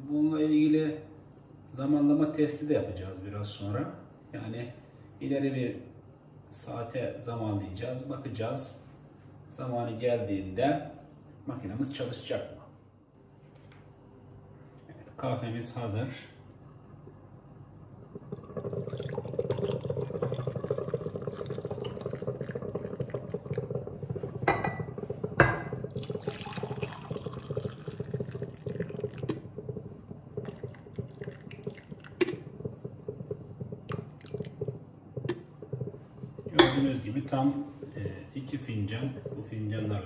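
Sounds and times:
coffee pouring into mugs: 18.1s - 40.0s
carafe and mugs knocking: 18.3s - 37.0s.

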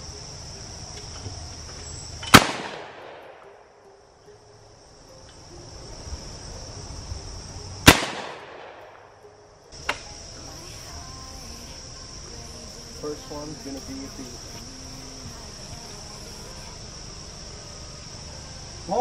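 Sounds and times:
insects buzzing: 0.0s - 19.0s
shotgun shots: 2.3s - 3.4s, 7.9s - 8.8s.

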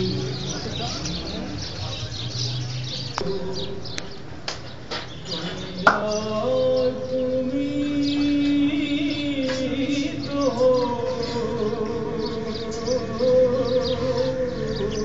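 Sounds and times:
birds chirping: 0.0s - 15.0s
man chanting: 3.0s - 4.4s, 5.2s - 15.0s.

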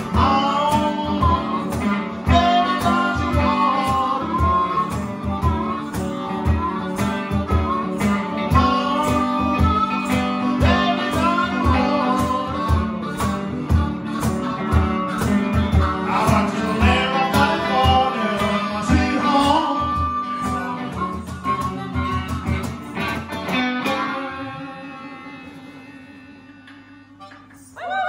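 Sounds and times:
man singing: 0.0s - 22.2s, 23.5s - 27.9s
cajon low thumps: 0.0s - 24.0s
electric guitar: 0.0s - 28.0s
harmonica wailing: 0.0s - 28.0s.

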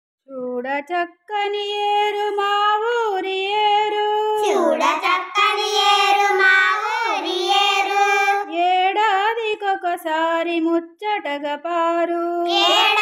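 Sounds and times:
child singing held notes: 4.4s - 8.5s, 12.5s - 13.0s.

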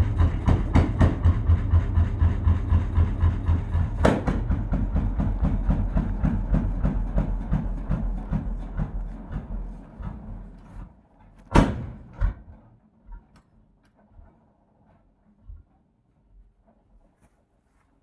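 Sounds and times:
engine slow beats running down: 0.0s - 13.2s
loud sharp knock: 0.1s - 8.9s, 11.5s - 12.4s.

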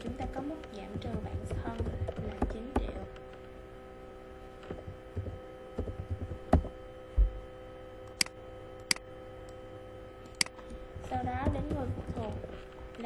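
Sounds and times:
electrical hum: 0.0s - 13.0s
soft thuds: 4.7s - 7.4s.

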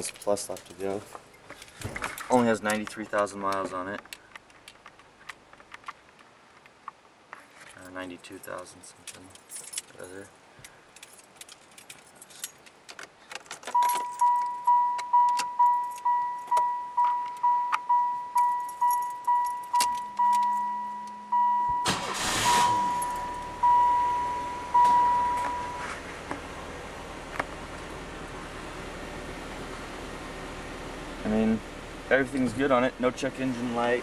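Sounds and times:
dashboard warning chime dinging: 13.7s - 26.0s
car engine starting and idling: 13.7s - 34.0s
engine cranking hum: 17.0s - 34.0s.

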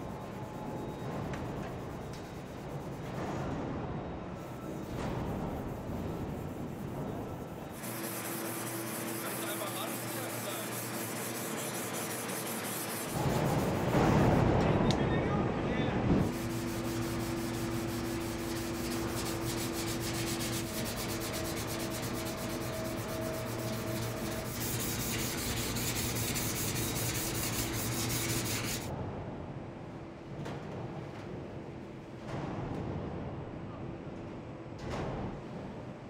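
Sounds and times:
factory machinery hum: 0.0s - 36.0s
hand rubbing on steel panel: 5.2s - 14.0s, 16.2s - 28.9s.

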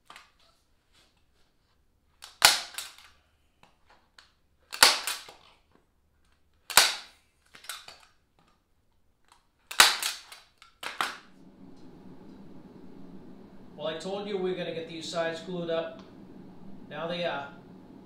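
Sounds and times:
staple gun snapping: 2.2s - 3.1s, 4.7s - 5.5s, 6.7s - 8.1s, 9.7s - 11.2s.

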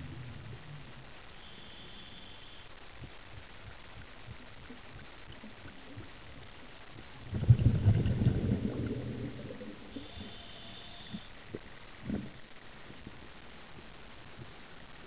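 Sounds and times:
underwater rumbling bubbles: 0.0s - 1.2s, 3.0s - 10.3s
low water hiss: 0.0s - 15.0s.

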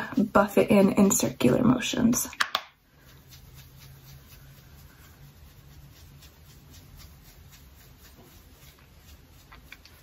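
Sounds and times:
low steady hum: 0.0s - 10.0s
makeup brush strokes on skin: 0.0s - 10.0s.

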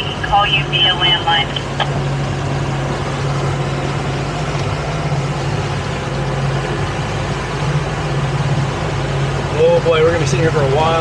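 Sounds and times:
outboard motors droning: 0.0s - 11.0s.

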